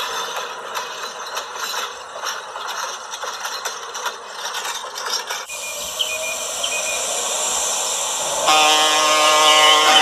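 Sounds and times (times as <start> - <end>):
model train wheels rattling: 0.0 - 5.8.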